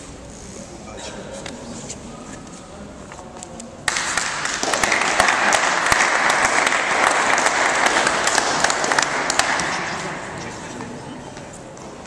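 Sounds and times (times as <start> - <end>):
audience applauding: 3.9 - 10.6.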